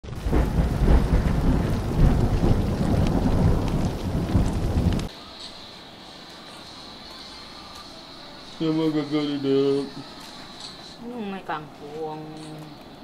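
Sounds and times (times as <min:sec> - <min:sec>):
thunder rumble: 0:00.0 - 0:05.1
sharp crackles: 0:00.0 - 0:05.2
rain: 0:00.0 - 0:10.3, 0:11.0 - 0:13.0.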